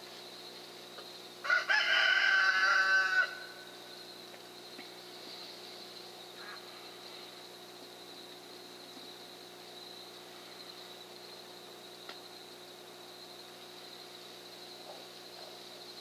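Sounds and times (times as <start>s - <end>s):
rooster crowing: 1.4s - 3.7s.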